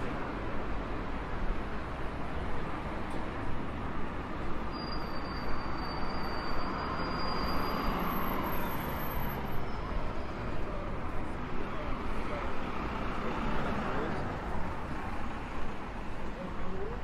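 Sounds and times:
city traffic noise: 0.0s - 17.0s.

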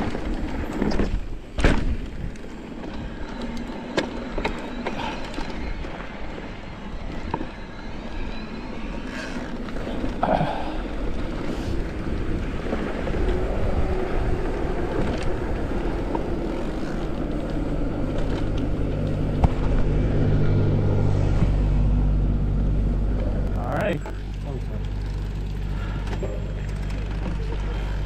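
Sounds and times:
bike tyres rolling on dirt and asphalt: 0.0s - 28.0s
wind on microphone: 11.5s - 17.1s
large vehicle idling hum: 17.0s - 28.0s.

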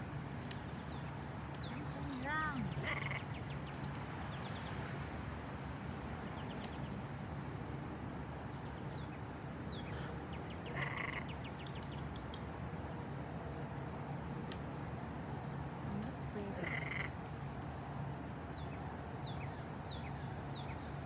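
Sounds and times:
outdoor background noise: 0.0s - 21.0s.

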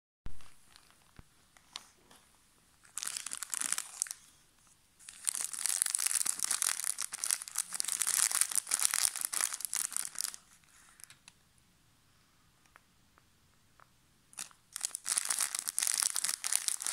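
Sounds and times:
plastic wrapper crinkling: 0.3s - 2.0s, 2.8s - 4.4s, 5.0s - 11.3s, 14.4s - 16.9s.

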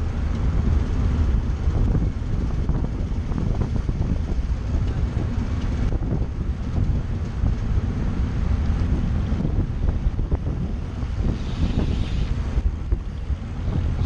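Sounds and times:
bicycle tyre road noise: 0.0s - 14.0s
wind buffeting microphone: 0.0s - 14.0s.

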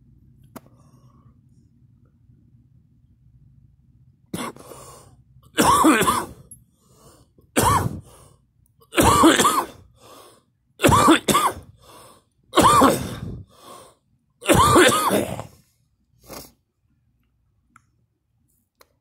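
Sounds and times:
person coughing hard: 4.4s - 4.7s, 5.5s - 6.4s, 7.6s - 8.1s, 8.8s - 9.9s, 10.8s - 11.8s, 12.6s - 13.5s, 14.4s - 15.6s.

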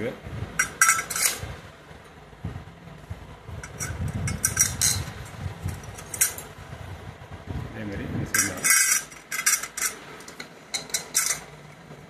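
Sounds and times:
metal bolts clinking: 0.6s - 1.5s, 3.6s - 6.5s, 8.3s - 11.7s.

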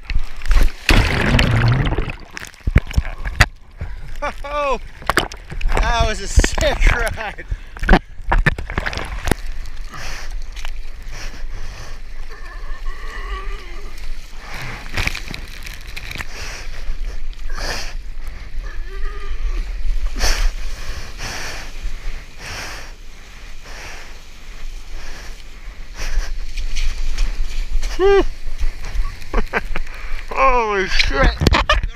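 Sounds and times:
low rumble of water on microphone: 0.0s - 5.8s
water splashing: 0.1s - 9.9s.

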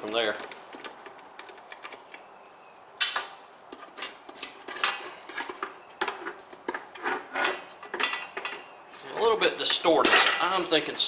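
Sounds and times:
metal clinks and scrapes: 3.8s - 8.7s
metal box clanking on steel table: 10.0s - 10.6s.

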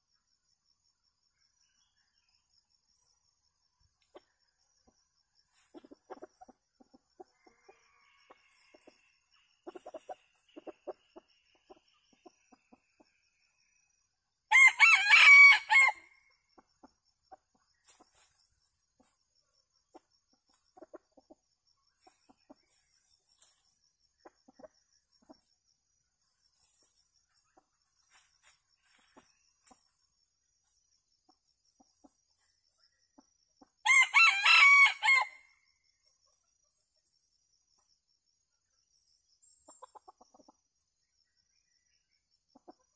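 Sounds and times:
chickens clucking: 4.0s - 13.2s, 16.6s - 19.3s, 19.9s - 25.5s, 31.3s - 33.8s, 39.6s - 40.7s, 42.5s - 42.9s
rooster crowing: 7.4s - 8.9s, 14.5s - 16.1s, 33.8s - 35.4s.

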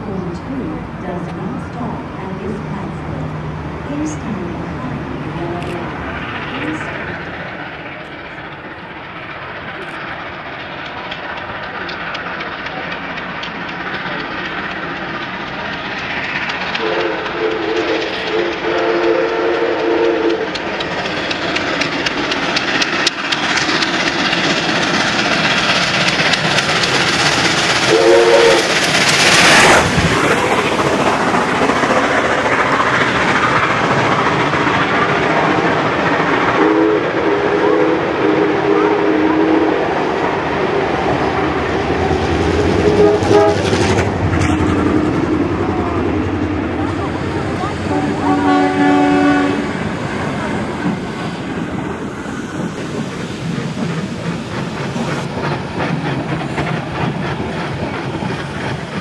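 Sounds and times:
steam locomotive passing: 0.0s - 59.0s
carriage wheels clicking on rail joints: 5.0s - 37.6s, 40.1s - 59.0s
two-note train whistle: 16.8s - 20.6s, 27.9s - 28.8s, 36.6s - 40.0s, 42.8s - 43.8s, 47.9s - 49.7s.

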